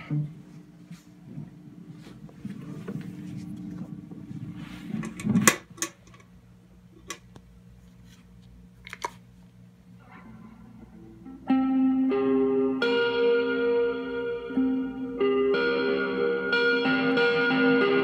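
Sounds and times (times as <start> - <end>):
low sustained amp sound: 10.0 - 18.0
ringing electric guitar notes: 10.0 - 18.0.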